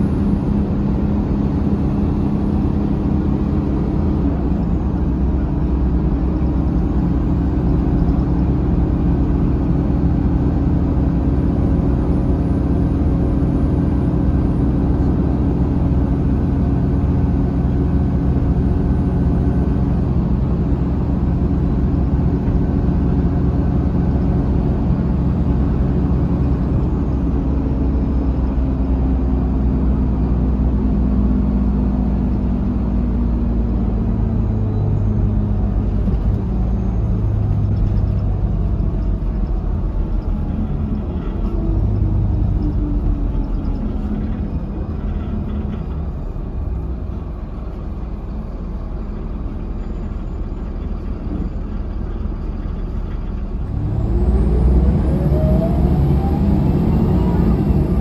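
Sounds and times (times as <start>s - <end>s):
coach diesel engine droning: 0.0s - 58.0s.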